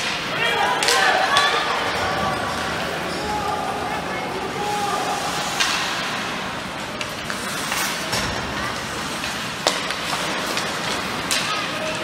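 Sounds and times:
game noise in gym: 0.0 - 12.0.

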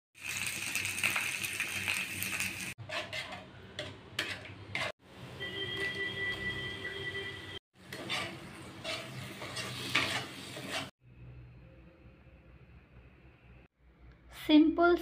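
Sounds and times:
okra sizzling in oil: 0.2 - 3.3, 5.6 - 11.0
wooden spatula scraping pan: 2.8 - 5.0, 7.8 - 11.0.

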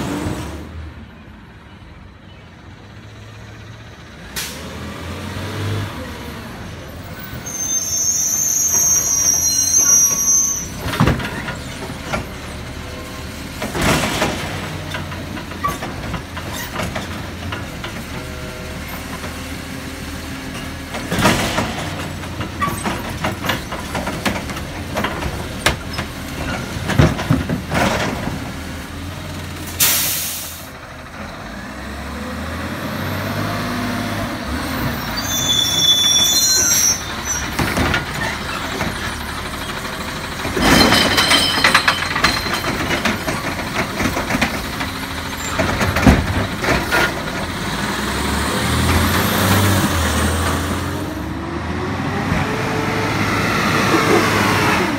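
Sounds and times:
high squeal: 7.2 - 11.5, 34.7 - 37.6
bins clanking and knocking: 10.8 - 12.6, 13.5 - 18.3, 20.8 - 28.6, 37.4 - 39.4, 40.3 - 47.5
air brake hiss: 29.8 - 30.7
diesel engine running: 37.1 - 54.9.

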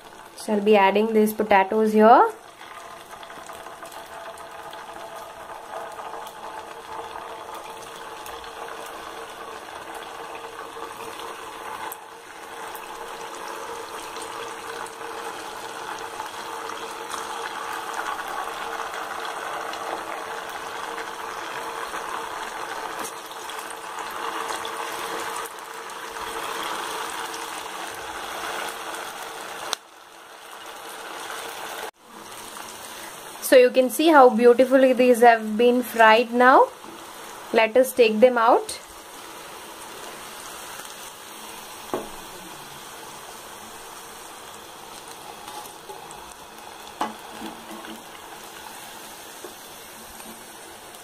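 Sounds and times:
potatoes deep-frying in oil: 0.0 - 51.0.

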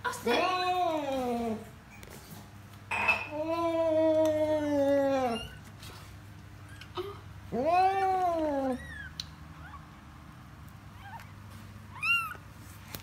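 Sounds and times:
cat chirping calls: 11.0 - 12.4.

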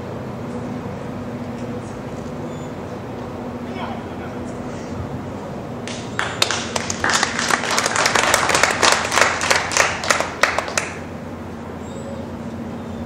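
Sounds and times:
spectators applauding: 5.9 - 11.0.

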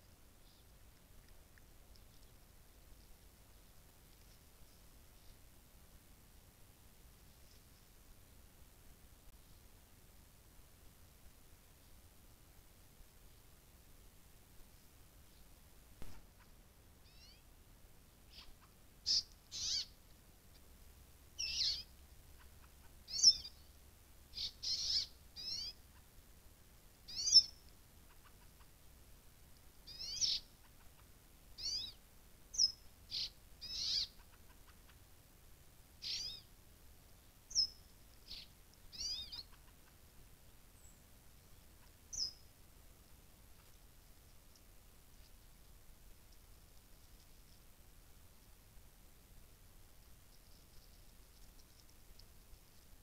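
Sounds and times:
short high-pitched animal calls: 17.0 - 17.5, 36.0 - 36.5.

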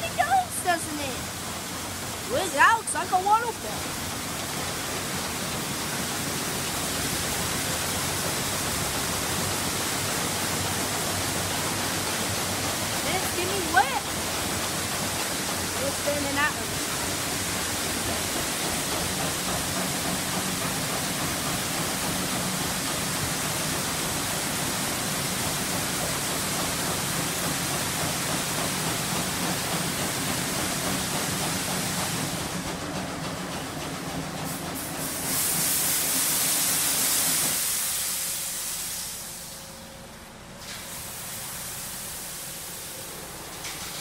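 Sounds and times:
car wash water jets spraying: 0.0 - 44.0
high hiss: 34.8 - 39.8.

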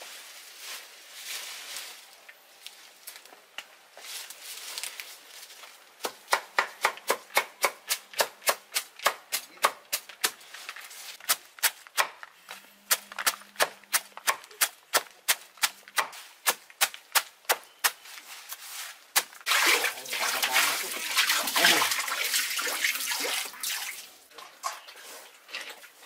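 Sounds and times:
machete chopping on wooden block: 6.0 - 10.4.

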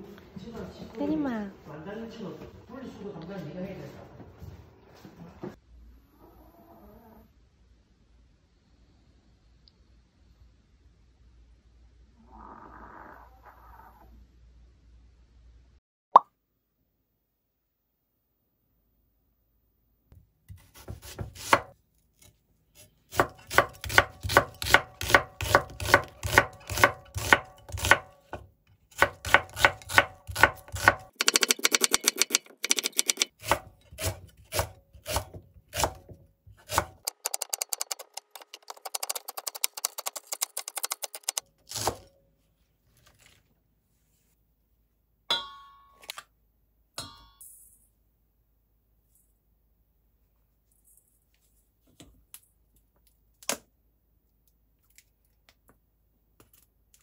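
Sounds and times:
knife chopping on wooden board: 20.5 - 21.7, 23.1 - 37.6.

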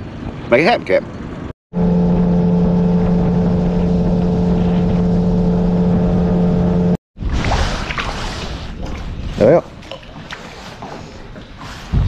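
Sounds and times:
outboard motor running: 1.7 - 7.0.

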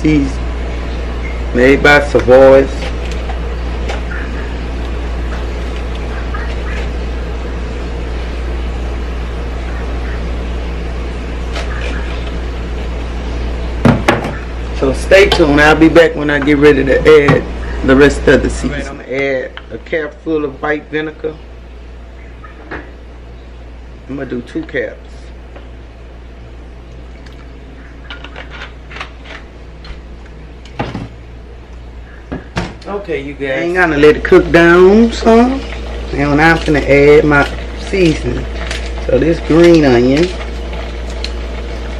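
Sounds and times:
pot boiling hum: 0.0 - 41.9
pot boiling hard: 32.8 - 41.9.

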